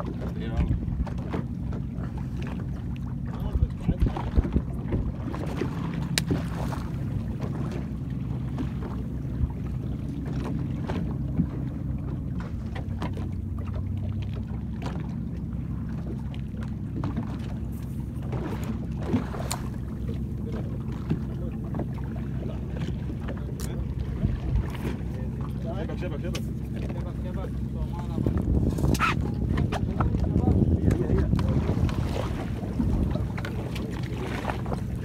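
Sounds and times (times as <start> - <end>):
boat engine droning: 0.0 - 35.0.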